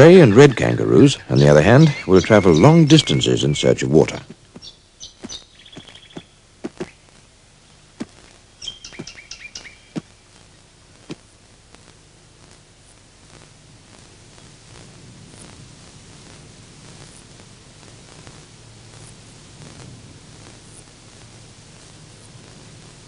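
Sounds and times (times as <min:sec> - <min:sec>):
bird chirping: 0:00.0 - 0:07.0, 0:08.6 - 0:10.0
faint steady hiss: 0:00.0 - 0:23.0
kangaroo feet thudding on ground: 0:04.5 - 0:07.0.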